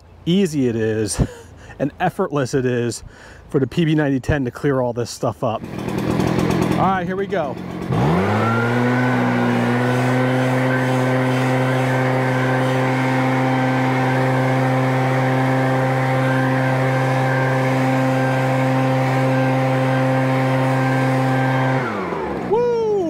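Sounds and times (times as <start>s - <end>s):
leaf blower running: 5.6s - 23.0s.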